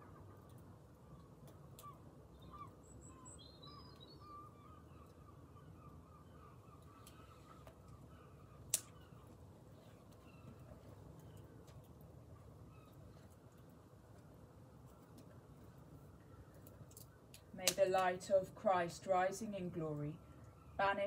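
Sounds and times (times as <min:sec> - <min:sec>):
wood fire crackling: 0:00.0 - 0:04.2, 0:06.4 - 0:20.6
faint birdsong: 0:00.0 - 0:21.0.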